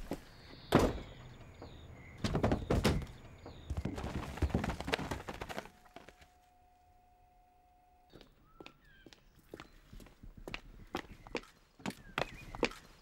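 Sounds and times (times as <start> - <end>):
knocks and thuds: 0.6 - 5.7
door thudding shut: 0.7 - 3.7.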